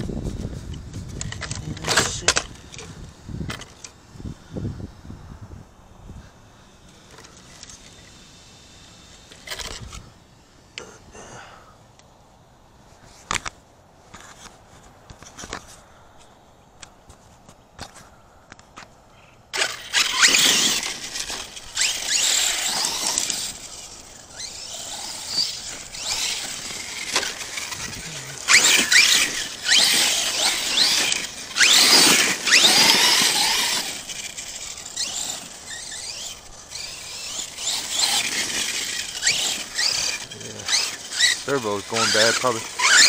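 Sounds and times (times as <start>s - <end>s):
rc truck electric motor whine: 6.5s - 10.8s, 19.5s - 43.0s.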